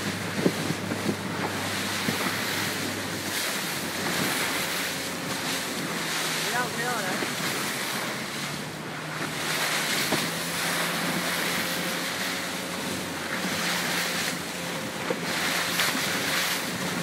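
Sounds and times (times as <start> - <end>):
sea water rushing and splashing: 0.0 - 17.0
strong wind buffeting microphone: 0.0 - 17.0.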